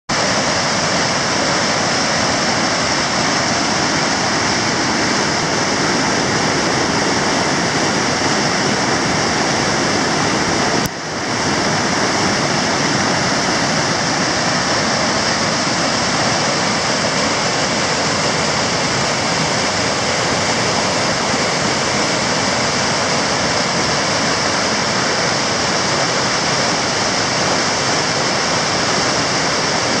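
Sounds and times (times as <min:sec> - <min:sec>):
river rapids rushing: 0:00.1 - 0:30.0.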